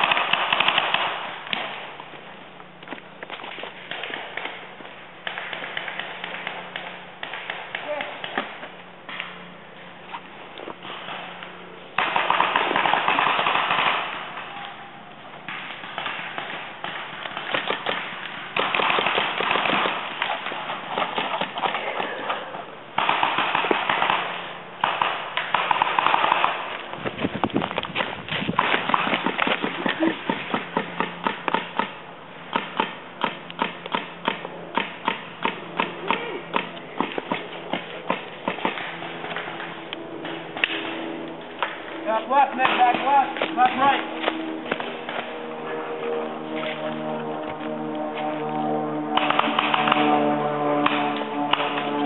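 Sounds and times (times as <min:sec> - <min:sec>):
paintball markers firing: 0:00.0 - 0:01.8, 0:02.9 - 0:09.4, 0:15.4 - 0:22.4, 0:23.0 - 0:45.3, 0:49.2 - 0:50.2.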